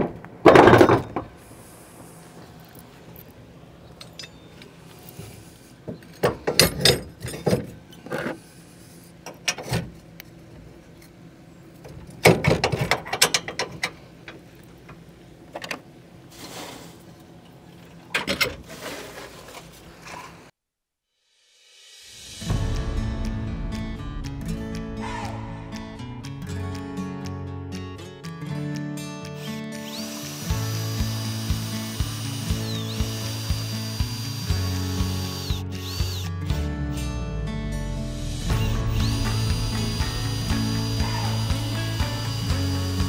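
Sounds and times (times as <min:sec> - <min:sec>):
metal clanks and rattles: 0:06.0 - 0:08.4, 0:11.8 - 0:14.0.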